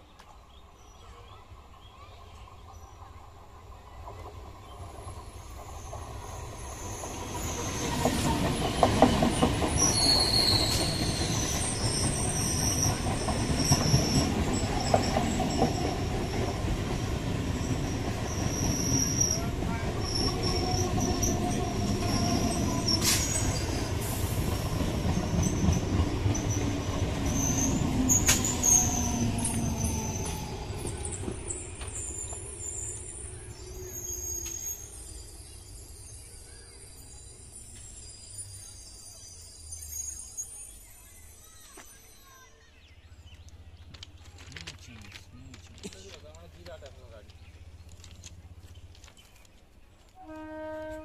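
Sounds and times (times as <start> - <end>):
train passing: 0.3 - 51.0
wheels rattling on rail: 0.8 - 51.0
high wheel squeal: 9.7 - 15.9, 17.6 - 41.8.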